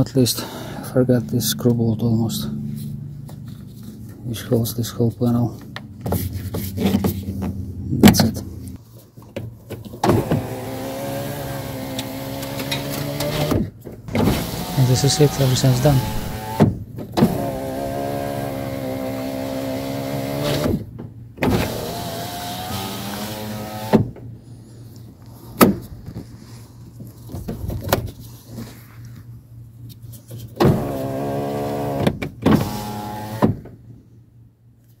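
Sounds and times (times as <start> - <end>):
power window motor whine: 10.0 - 20.8, 21.4 - 24.1, 30.6 - 33.6.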